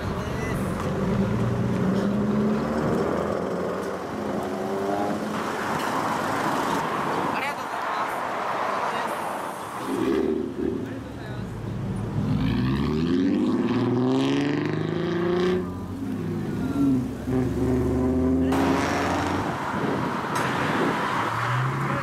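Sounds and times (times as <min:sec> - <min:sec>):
car passing: 0:00.0 - 0:22.0
car engine revving: 0:11.9 - 0:22.0.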